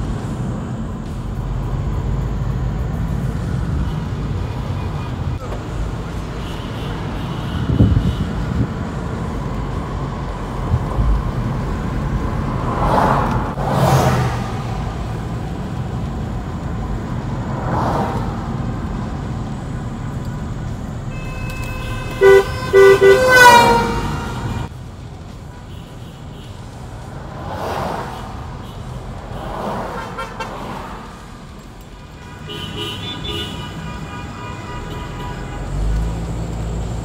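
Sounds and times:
road noise inside car: 0.0s - 37.0s
vehicles whooshing past: 0.0s - 37.0s
car horn honking: 6.2s - 8.6s, 21.0s - 24.7s, 28.6s - 30.8s, 32.2s - 35.9s.

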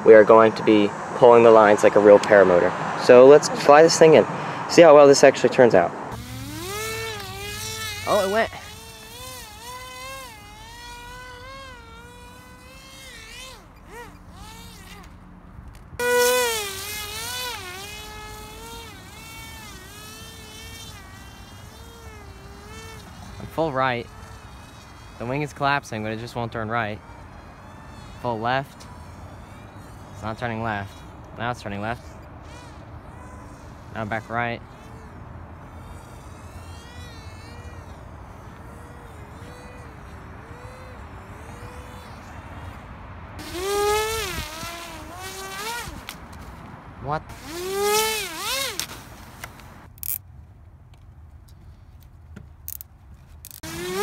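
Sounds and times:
electric motor and propeller whine: 0.0s - 50.3s, 52.6s - 54.0s.

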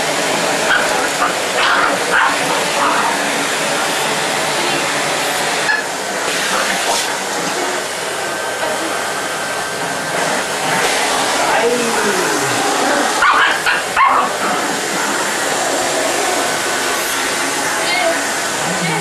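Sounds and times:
vacuum cleaner running: 0.0s - 19.0s
small dog barking: 0.7s - 2.9s, 12.8s - 14.4s.

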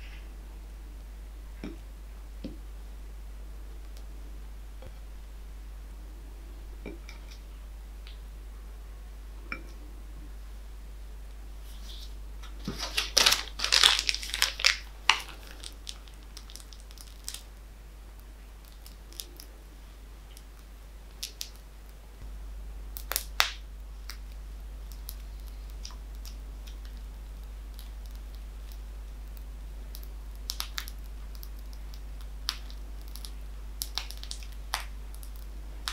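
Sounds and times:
plastic bag crinkling: 11.7s - 17.5s.

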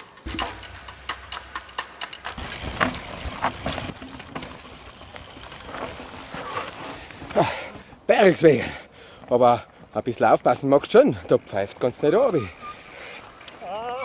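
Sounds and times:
bike falling: 0.0s - 7.9s
bike rattling clicks and knocks: 0.0s - 7.9s
bike tyres on dirt trail: 0.0s - 14.0s.

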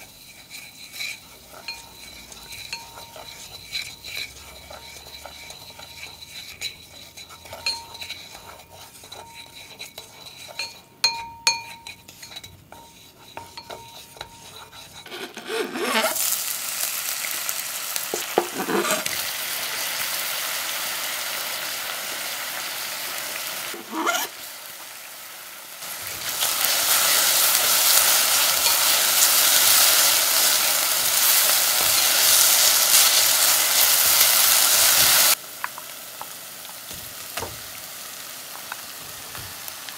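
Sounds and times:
food sizzling in caramel: 0.0s - 39.9s
chopsticks clattering: 1.1s - 14.5s.

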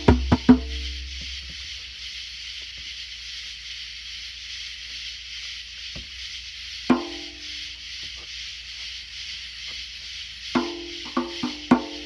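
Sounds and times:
hard drum stroke ringing: 0.0s - 1.7s, 10.5s - 12.0s
night insects chirring: 0.0s - 12.0s.

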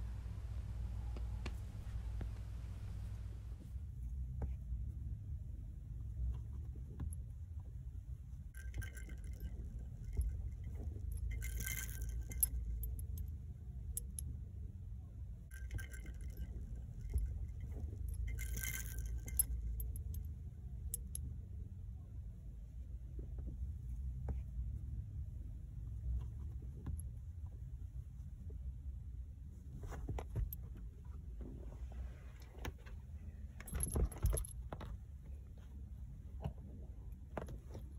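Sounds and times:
light metallic jingling: 8.6s - 14.3s, 15.5s - 21.3s, 33.5s - 35.4s
car cabin rumble: 30.0s - 37.9s.

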